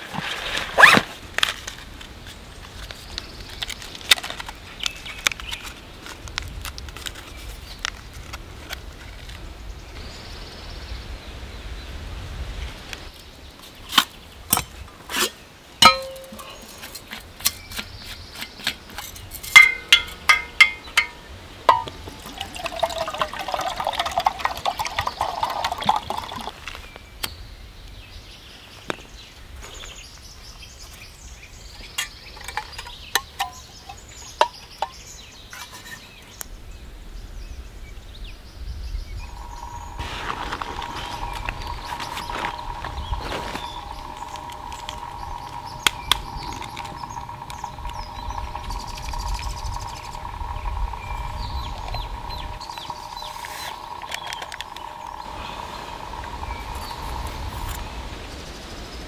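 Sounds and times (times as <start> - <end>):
metal clinks and taps: 19.0 - 22.0
water pouring into metal cup: 21.7 - 26.6.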